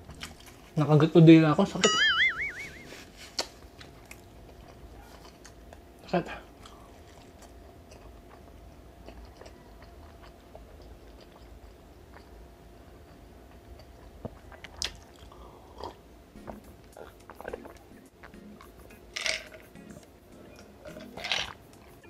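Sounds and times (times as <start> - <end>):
lip smacks and mouth clicks: 13.8 - 15.3.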